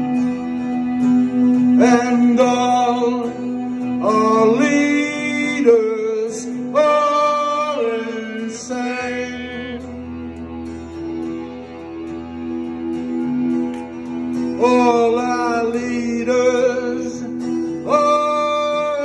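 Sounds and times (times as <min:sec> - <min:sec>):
acoustic and electric guitars: 0:00.0 - 0:19.0
man singing: 0:01.4 - 0:10.2, 0:14.5 - 0:19.0.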